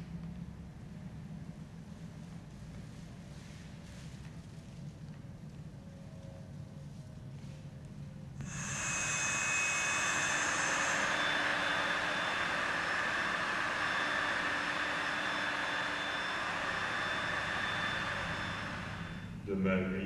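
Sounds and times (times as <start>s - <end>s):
vacuum cleaner whine: 8.4s - 19.4s.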